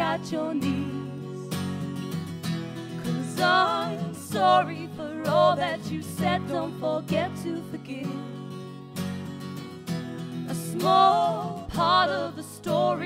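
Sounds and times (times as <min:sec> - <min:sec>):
women singing: 0:00.0 - 0:01.6, 0:02.9 - 0:08.5, 0:10.5 - 0:13.0
acoustic guitars strummed: 0:00.0 - 0:13.0.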